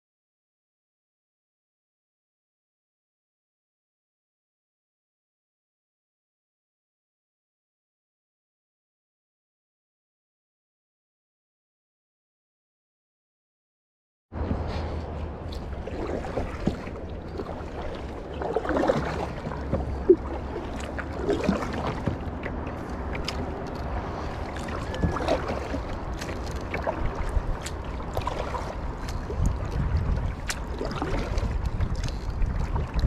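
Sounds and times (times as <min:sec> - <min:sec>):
water lapping against kayak hull: 0:14.4 - 0:33.0
wind rumble on microphone: 0:14.4 - 0:33.0
small splashes and drips: 0:15.5 - 0:33.0.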